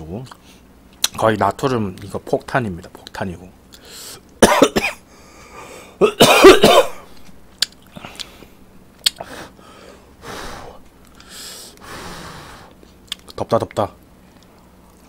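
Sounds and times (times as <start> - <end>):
mouth clicks while chewing: 7.6 - 8.4, 9.0 - 9.2, 13.0 - 13.4.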